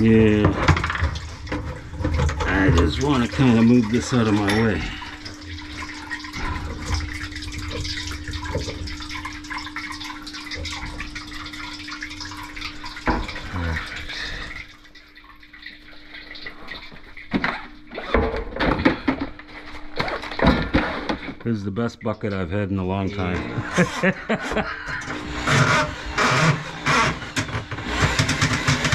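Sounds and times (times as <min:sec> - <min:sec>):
water trickling into steel bowl: 0:00.0 - 0:18.0.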